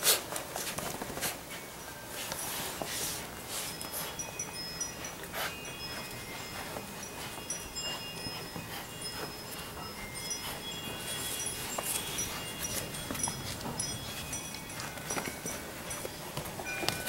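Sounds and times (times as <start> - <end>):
puppies scuffling and pawing: 0.0 - 17.0
faint clicks and rustles: 0.1 - 17.0
short high ringing notes: 3.5 - 17.0.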